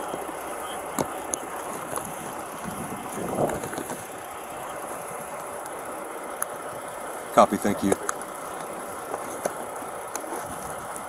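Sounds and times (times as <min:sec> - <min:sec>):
faint traffic: 0:00.0 - 0:11.0
muffled rustle: 0:08.6 - 0:11.0.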